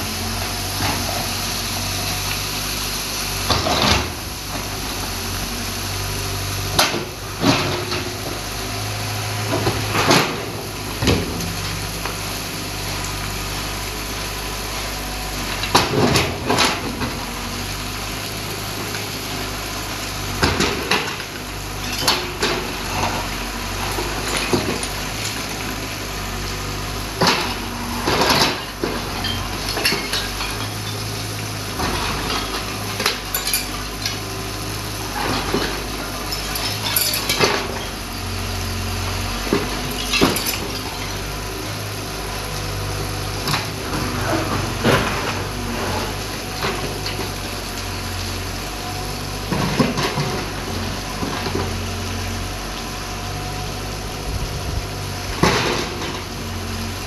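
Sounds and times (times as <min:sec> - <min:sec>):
excavator diesel engine drone: 0:00.0 - 0:57.0
concrete chunks crashing onto rubble: 0:20.1 - 0:38.4, 0:39.4 - 0:42.0, 0:55.3 - 0:56.5.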